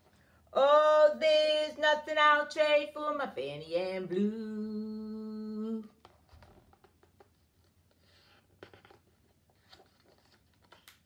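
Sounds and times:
paper page rustling: 0:05.9 - 0:11.0.

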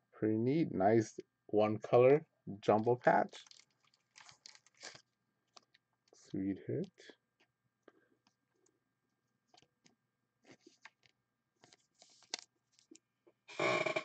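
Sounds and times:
trading card clicks and rustles: 0:03.0 - 0:06.3, 0:09.5 - 0:13.0.

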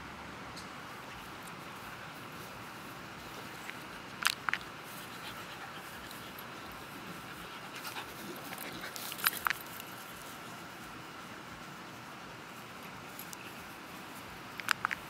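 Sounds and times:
dogs panting: 0:01.1 - 0:10.6.

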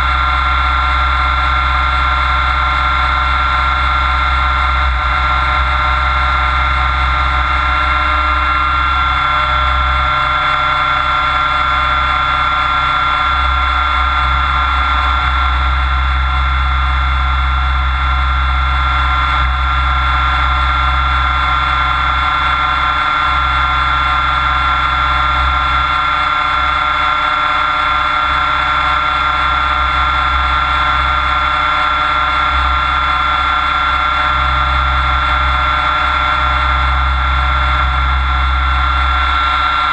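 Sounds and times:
helicopter motor whine: 0:00.0 - 0:39.9.

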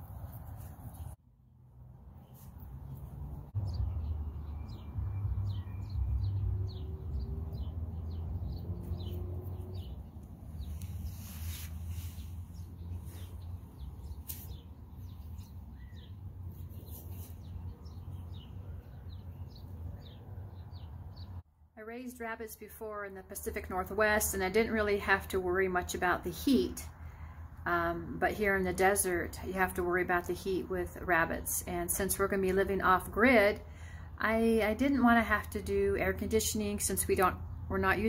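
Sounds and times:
small birds chirping: 0:02.2 - 0:21.4.

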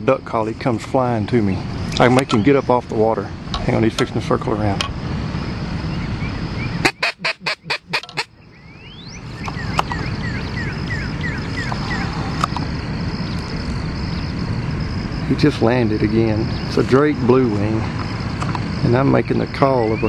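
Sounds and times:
duck call quacks: 0:06.8 - 0:08.3.

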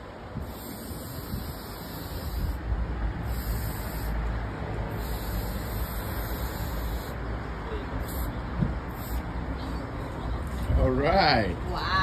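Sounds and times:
spray paint can hissing: 0:00.4 - 0:04.3, 0:04.9 - 0:07.2, 0:08.0 - 0:08.3, 0:08.9 - 0:09.3.

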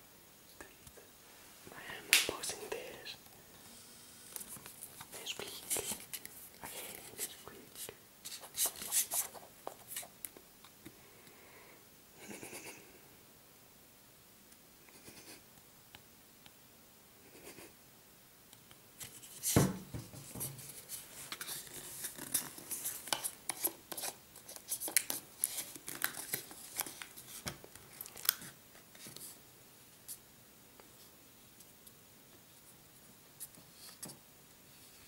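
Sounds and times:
knock: 0:19.6 - 0:20.6.

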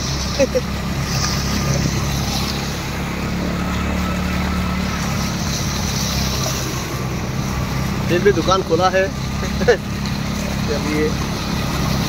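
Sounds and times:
vehicle engine running: 0:00.0 - 0:12.0
water hissing around vehicle: 0:00.0 - 0:12.0.

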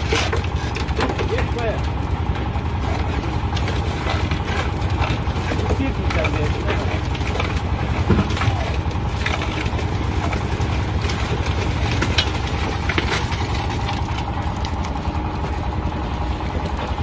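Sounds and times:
concrete mixer engine hum: 0:00.0 - 0:17.0
wet concrete pouring into wheelbarrow: 0:00.0 - 0:17.0.

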